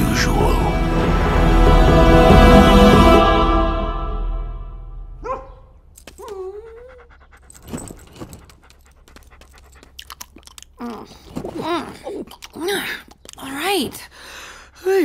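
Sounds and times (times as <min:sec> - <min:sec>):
dog sniffing and licking: 0:06.1 - 0:10.8
dog whining: 0:06.2 - 0:08.5
dog panting: 0:06.2 - 0:10.5.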